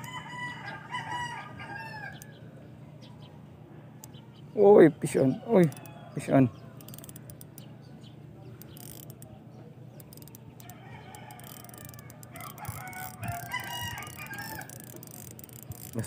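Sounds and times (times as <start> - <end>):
rooster crowing: 0.0 - 2.3, 10.6 - 15.9
fishing reel winding: 5.6 - 5.8, 6.8 - 7.6, 8.6 - 9.3, 10.0 - 16.0.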